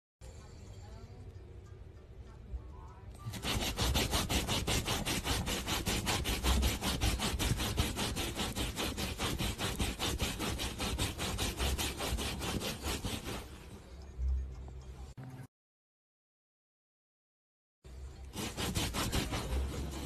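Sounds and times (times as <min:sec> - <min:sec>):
dog claws scratching upholstery: 0:03.3 - 0:13.7, 0:18.3 - 0:20.0.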